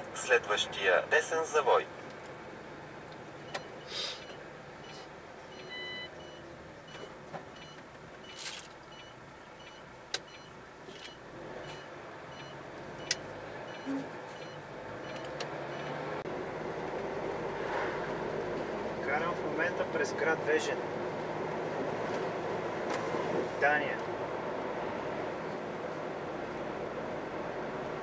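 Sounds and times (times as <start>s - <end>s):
vehicle engine and road noise: 0.0s - 28.0s
short beep: 3.5s - 13.1s.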